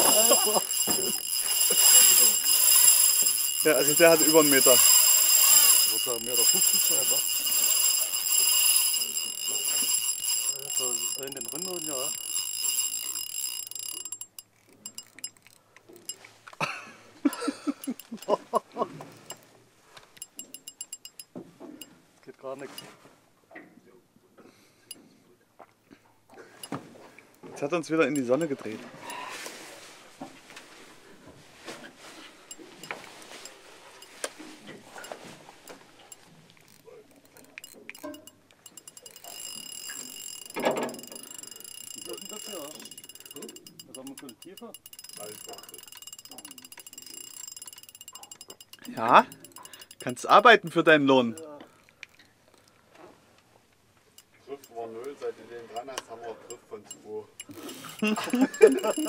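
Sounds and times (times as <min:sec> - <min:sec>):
fishing reel clicking: 0:00.0 - 0:16.2, 0:17.3 - 0:18.3, 0:19.1 - 0:19.4, 0:20.2 - 0:21.3, 0:28.1 - 0:29.2, 0:32.5 - 0:34.3, 0:35.0 - 0:51.5, 0:54.2 - 0:59.0
fishing reel drag whine: 0:00.0 - 0:16.2, 0:17.3 - 0:18.3, 0:19.1 - 0:19.4, 0:20.2 - 0:21.3, 0:32.4 - 0:51.5, 0:54.2 - 0:59.0.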